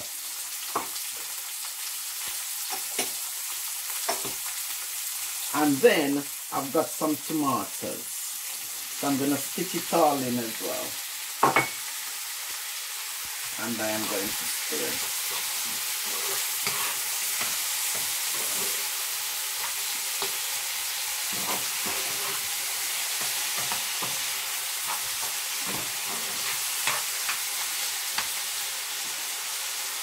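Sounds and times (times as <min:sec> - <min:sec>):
vegetables sizzling in frying pan: 0:00.0 - 0:30.0
utensil scraping pan: 0:14.3 - 0:19.0, 0:21.2 - 0:27.5.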